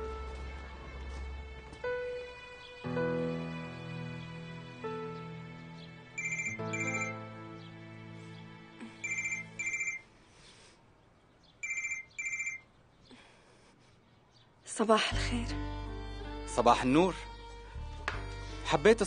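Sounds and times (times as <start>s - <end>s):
soft background music: 0.0s - 10.0s, 14.7s - 19.0s
telephone trilling ring: 6.2s - 7.1s, 9.0s - 10.0s, 11.6s - 12.6s.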